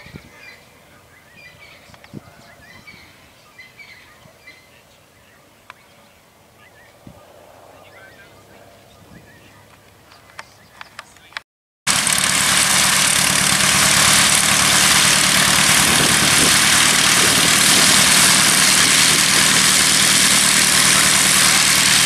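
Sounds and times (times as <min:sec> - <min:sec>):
propeller aircraft engine idling: 0:11.9 - 0:22.0
propeller wash hiss: 0:11.9 - 0:22.0.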